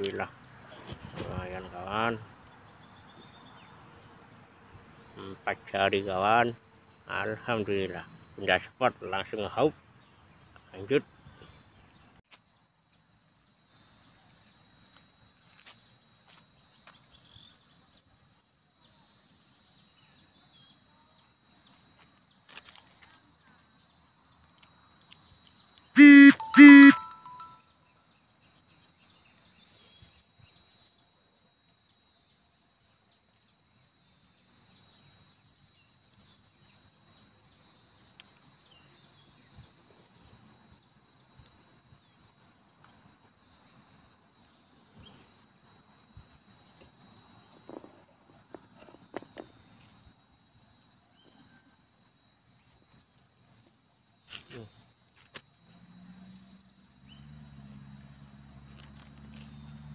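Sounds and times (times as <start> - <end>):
insects droning: 0.0 - 59.9
faint short chirps: 26.0 - 27.6, 54.3 - 54.9.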